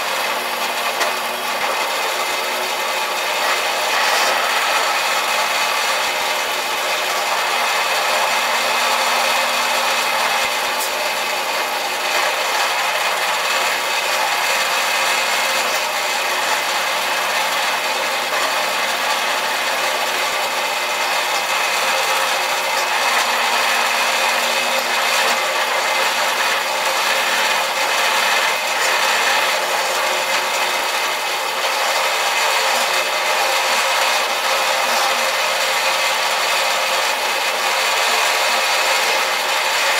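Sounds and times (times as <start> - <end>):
drill press drilling steel: 0.0 - 39.9.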